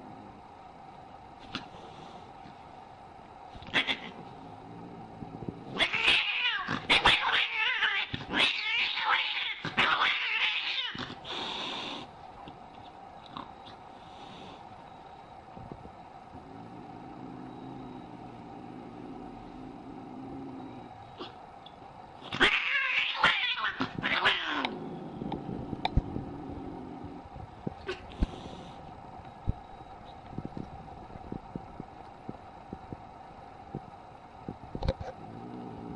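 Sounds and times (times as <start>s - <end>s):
cat hissing: 3.6s - 4.3s, 5.8s - 12.1s
cat yowling: 3.7s - 4.2s, 5.8s - 11.1s, 22.3s - 24.7s.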